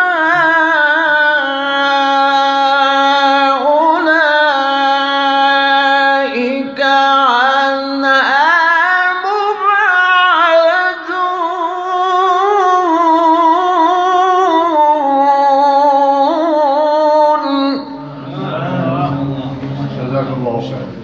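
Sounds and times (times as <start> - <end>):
man reciting melodically: 0.0 - 21.0
man speaking: 18.0 - 21.0.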